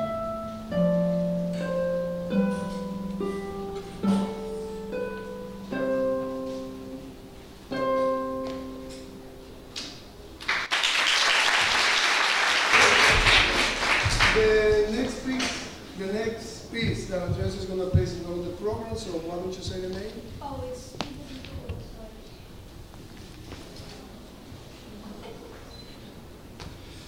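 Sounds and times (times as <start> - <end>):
harp playing: 0.0 - 9.8
audience applause: 10.4 - 15.6.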